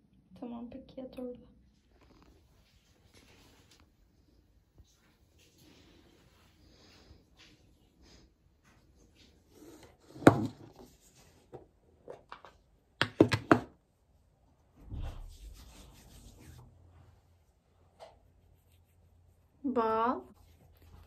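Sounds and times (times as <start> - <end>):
hands rubbing cream: 15.0 - 16.7, 18.0 - 19.6, 20.2 - 21.0.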